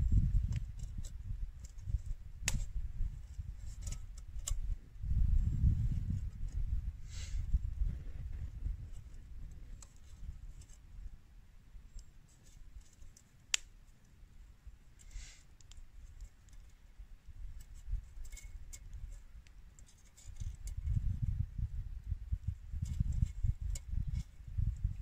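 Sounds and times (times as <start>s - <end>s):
campfire crackling: 13.2s - 16.6s.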